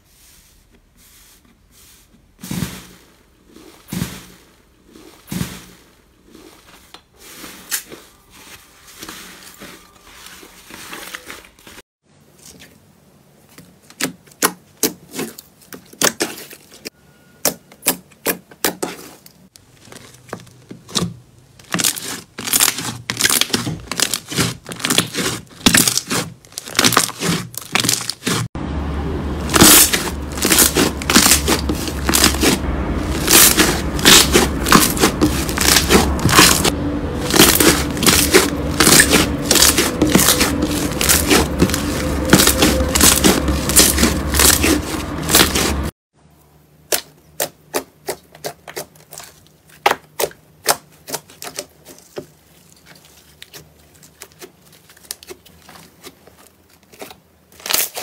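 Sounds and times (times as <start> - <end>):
low steady hum: 28.6 - 46.9.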